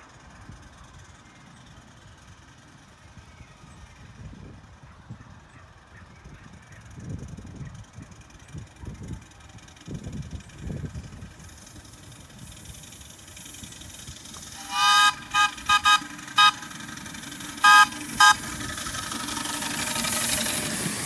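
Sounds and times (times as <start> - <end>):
train running rumble: 6.5 - 21.0
steam locomotive whistle toots: 14.5 - 20.8.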